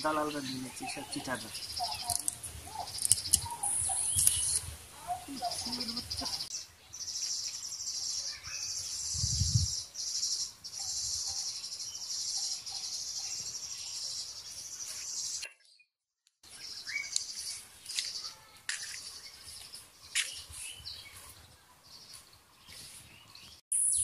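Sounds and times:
insects trilling: 0.7 - 6.5
faint bird chirps: 0.7 - 15.7.

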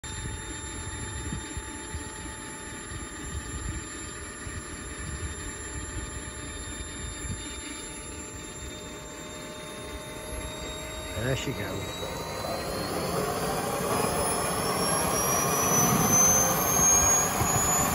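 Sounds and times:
model gas turbine whining: 0.0 - 17.9.

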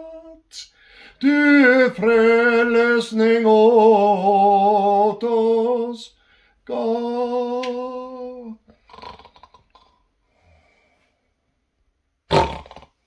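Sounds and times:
man singing a long note: 0.0 - 0.6, 1.2 - 8.6
faint breaths: 0.6 - 1.2, 6.1 - 6.6, 10.2 - 11.5
loud snore: 8.8 - 10.0, 12.3 - 13.0.

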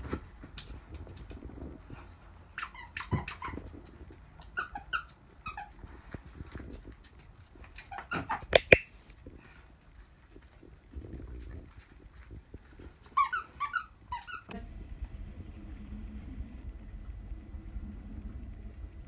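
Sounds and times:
squeaky dog toys squeaking: 2.6 - 3.6, 4.6 - 5.8, 13.1 - 14.5
toy knocking into plastic bin: 8.5 - 8.8.

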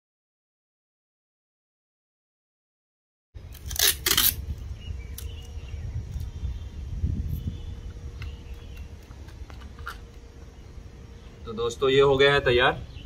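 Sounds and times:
tape ripped off roll: 3.6 - 4.4.

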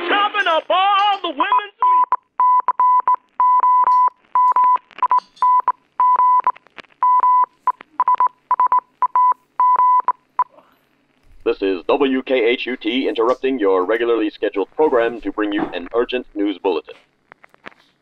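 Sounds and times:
song on radio: 0.0 - 2.0, 11.5 - 17.0.

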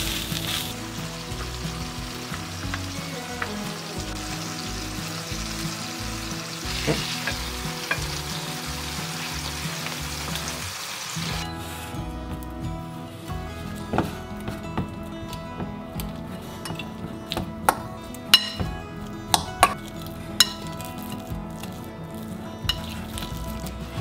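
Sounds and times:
fish sizzling in a frying pan: 0.0 - 11.4.

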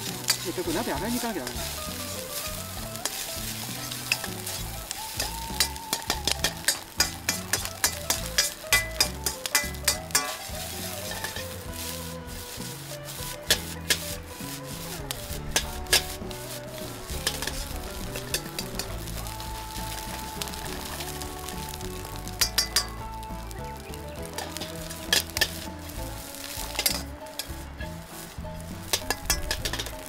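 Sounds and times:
metal utensil clanking on wok: 0.0 - 4.6, 5.2 - 11.7, 13.4 - 14.2, 15.5 - 16.3, 17.1 - 19.0, 22.4 - 23.0, 26.6 - 28.0, 28.8 - 30.0
rice sizzling in a wok: 0.0 - 30.0.

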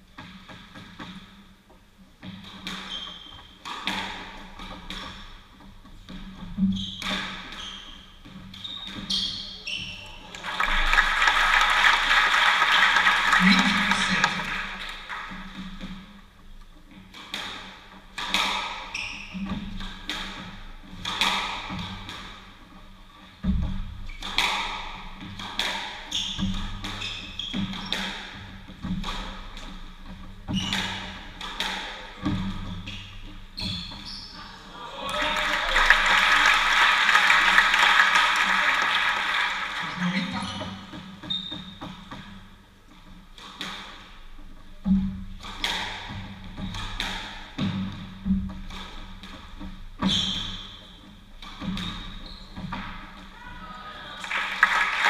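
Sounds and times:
squash ball hitting rackets and walls: 0.2 - 1.4, 2.2 - 10.9, 16.9 - 34.4, 40.6 - 53.4
audience applauding: 10.3 - 15.3, 35.1 - 40.3, 54.2 - 55.0.

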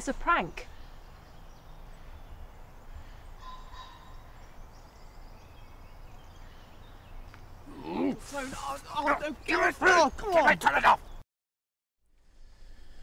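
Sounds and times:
faint bird calls: 0.6 - 9.1.

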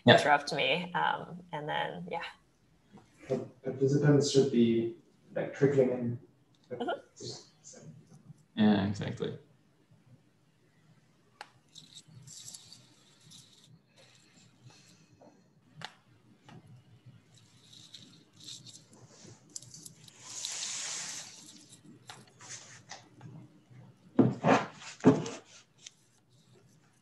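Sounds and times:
soft hiss: 10.2 - 23.3
faint clicks and rustles: 11.4 - 24.2, 24.8 - 27.0.

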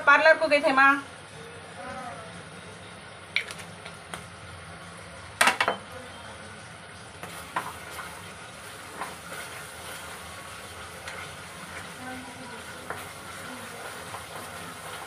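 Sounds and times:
low steady sizzle: 0.0 - 15.0
spatula stirring sauce in wok: 7.2 - 15.0.

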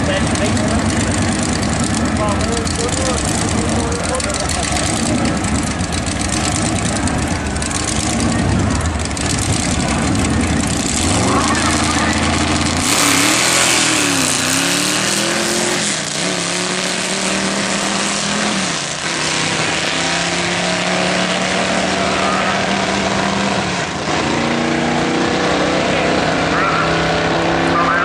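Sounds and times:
drag car engine at full throttle: 0.0 - 28.0.

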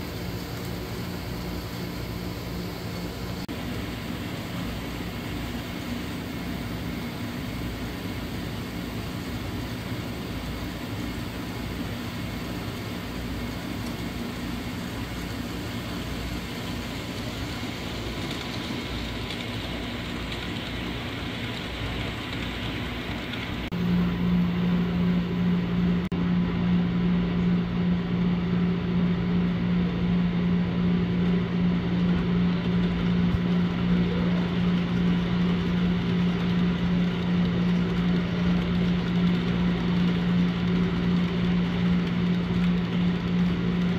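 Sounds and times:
model trains rolling: 0.0 - 26.0, 31.2 - 43.9.

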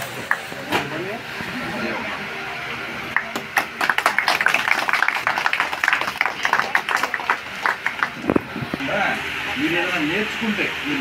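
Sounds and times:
people clapping: 0.2 - 0.5, 3.1 - 8.8.

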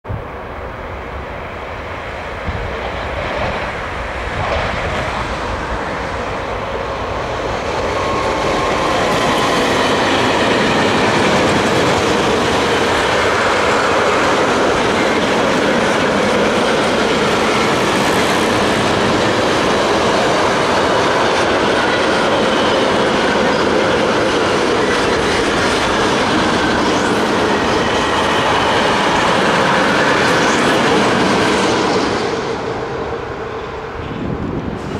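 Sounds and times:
train wheels rolling on rail: 0.1 - 34.9.

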